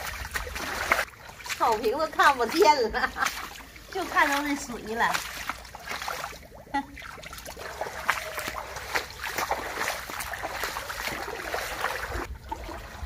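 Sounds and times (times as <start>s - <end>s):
rubber boots wading through water: 0.0s - 13.0s.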